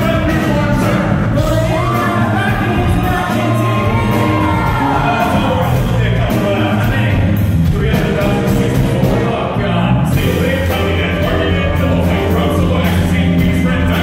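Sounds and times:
live rock band with vocalist: 0:00.0 - 0:14.0.

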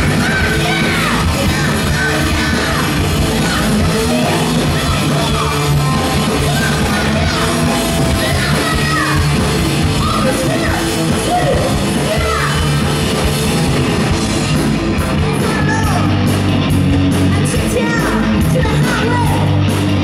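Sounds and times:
woman singing and yelling: 0:00.0 - 0:09.4
electric guitar and bass: 0:00.0 - 0:20.0.

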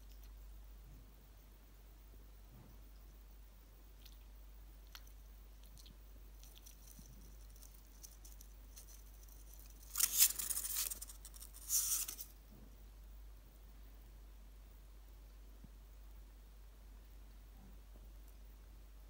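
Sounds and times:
hedgehog crunching and chewing: 0:03.0 - 0:12.4.

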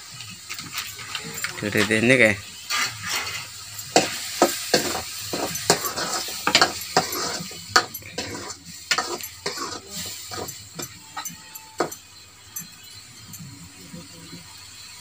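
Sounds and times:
food sizzling: 0:00.0 - 0:15.0
spoon stirring and scraping pan: 0:02.6 - 0:12.1
spoon clinking against pan: 0:03.8 - 0:13.5.

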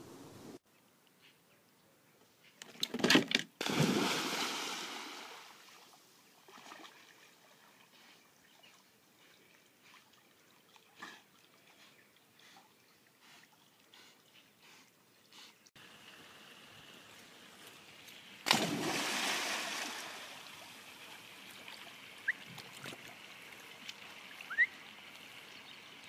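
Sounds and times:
dog splashing into water: 0:03.6 - 0:05.4, 0:18.4 - 0:20.2.

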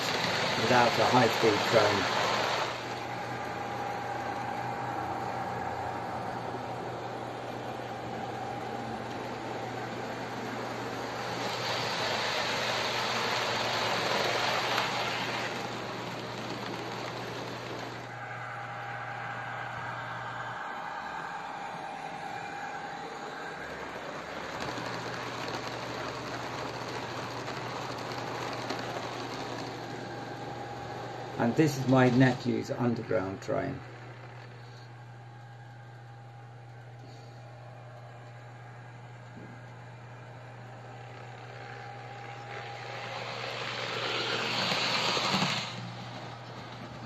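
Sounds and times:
model train wheels on rails: 0:00.0 - 0:35.0, 0:40.2 - 0:47.0
low motor hum: 0:00.0 - 0:47.0.

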